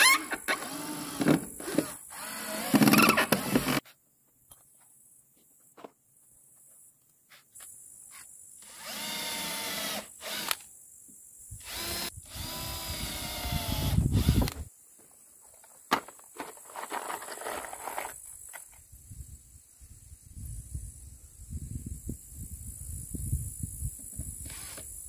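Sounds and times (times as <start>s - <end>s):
drill driving screws into wood: 0.0s - 3.8s, 8.6s - 10.7s, 11.6s - 14.7s, 24.4s - 25.0s.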